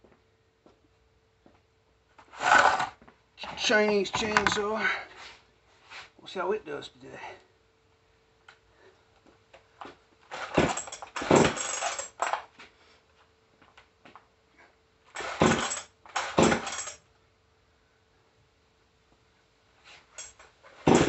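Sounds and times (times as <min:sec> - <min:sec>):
chainsaw pull-cord starter yanked: 0:02.4 - 0:03.0, 0:03.8 - 0:04.7, 0:10.3 - 0:12.4, 0:15.2 - 0:17.0.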